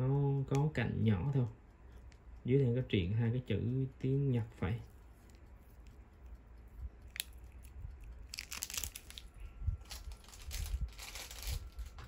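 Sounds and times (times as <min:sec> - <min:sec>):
packaging rustling and crinkling: 0:08.0 - 0:12.0.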